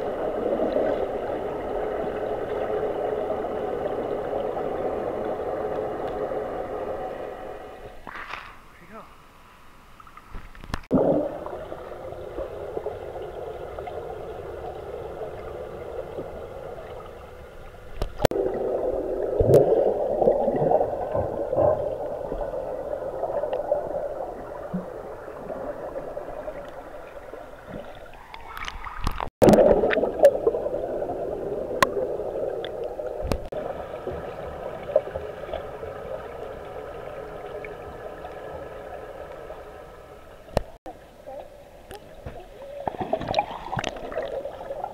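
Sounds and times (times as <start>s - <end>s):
bubbles rising: 0.0s - 8.1s, 10.9s - 39.8s, 42.9s - 44.9s
low hum: 0.0s - 40.8s
muffled underwater water rush: 0.0s - 44.9s.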